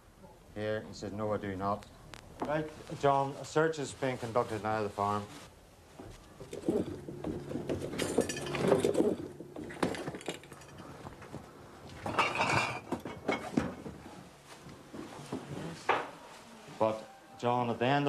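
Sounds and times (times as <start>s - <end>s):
glass bottles clinking: 6.4s - 11.4s, 12.0s - 13.5s.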